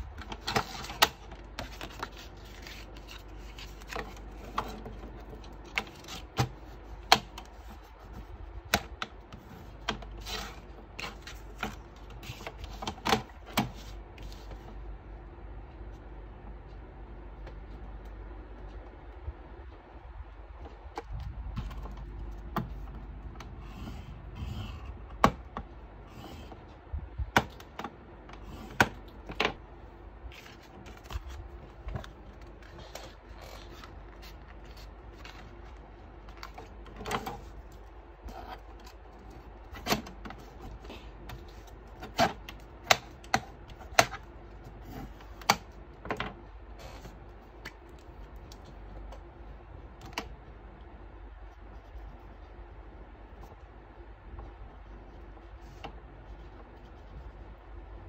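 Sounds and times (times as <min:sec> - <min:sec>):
paper rustling and creasing: 0:00.1 - 0:08.4, 0:30.3 - 0:42.0.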